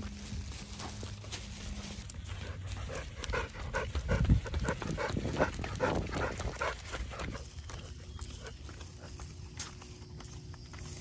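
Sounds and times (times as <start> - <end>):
dog panting: 2.3 - 9.5.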